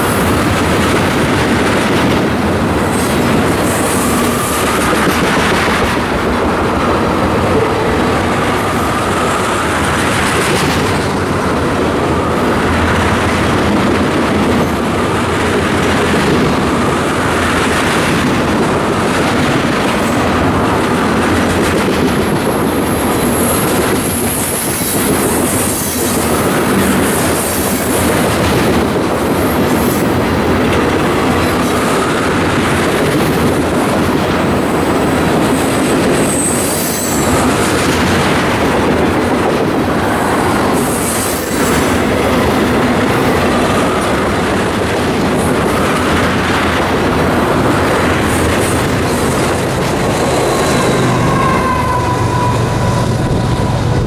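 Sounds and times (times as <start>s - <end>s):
freight train rumbling past: 0.0s - 54.0s
high wheel squeal: 3.6s - 4.9s, 36.1s - 37.8s, 49.4s - 54.0s.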